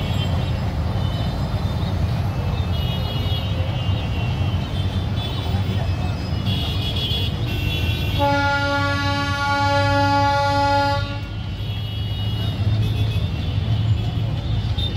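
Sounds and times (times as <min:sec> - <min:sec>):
locomotive horn blast: 0:07.1 - 0:13.4.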